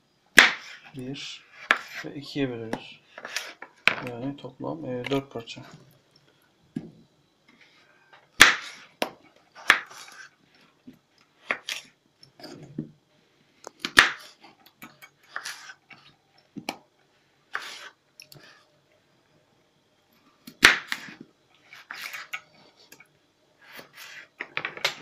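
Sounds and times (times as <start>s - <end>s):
knife slicing potato: 1.5s - 2.1s, 9.6s - 10.3s, 15.3s - 15.8s, 17.5s - 18.0s, 20.5s - 22.4s, 23.6s - 24.3s.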